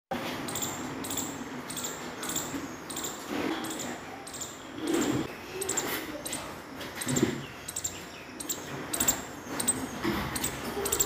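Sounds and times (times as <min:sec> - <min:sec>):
squirrel chirping: 0:00.5 - 0:11.0.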